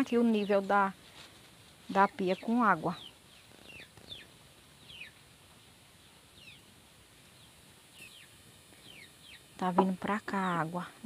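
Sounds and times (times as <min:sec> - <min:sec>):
background hiss: 0:00.0 - 0:11.0
faint bird chirps: 0:02.0 - 0:05.2, 0:06.0 - 0:06.7, 0:07.3 - 0:10.9.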